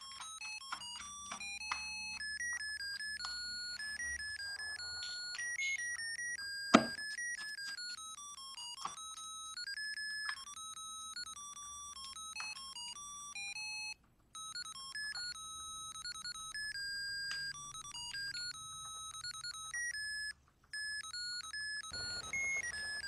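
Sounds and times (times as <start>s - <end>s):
tinny electronic beeping tune: 0.3s - 8.2s, 14.4s - 23.0s.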